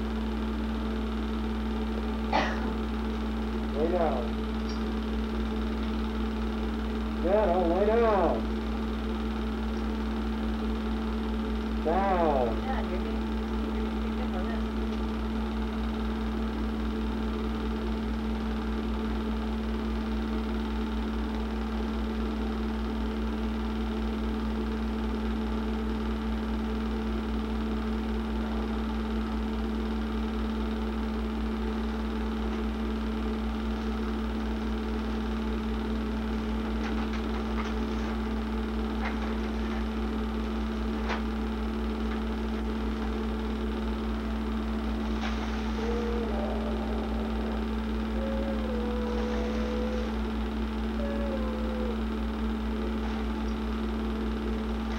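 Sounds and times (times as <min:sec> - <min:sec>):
film projector humming: 0:00.0 - 0:54.9.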